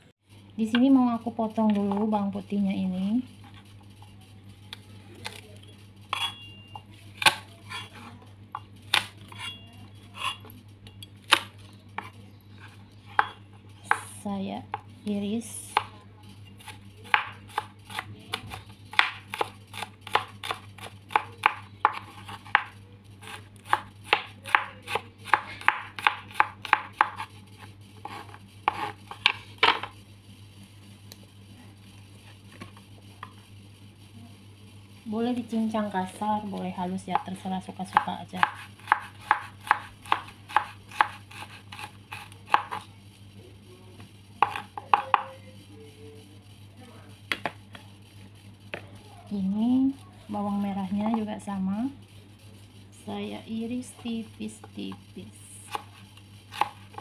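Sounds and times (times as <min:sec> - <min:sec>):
knife chopping on cutting board: 0:16.6 - 0:27.3, 0:28.0 - 0:29.9, 0:37.9 - 0:42.8, 0:44.4 - 0:45.3, 0:55.7 - 0:57.0.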